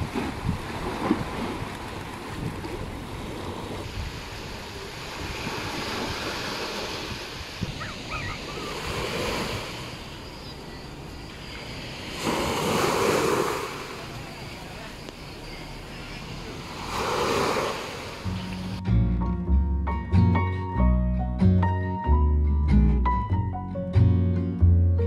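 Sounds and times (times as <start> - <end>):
wind rumbling on microphone: 0.0 - 14.4
small waves washing on beach: 0.0 - 18.8.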